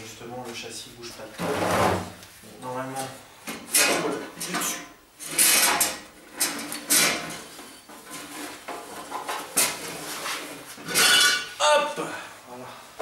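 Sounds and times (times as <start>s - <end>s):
cover scraping and knocking: 1.4s - 2.2s.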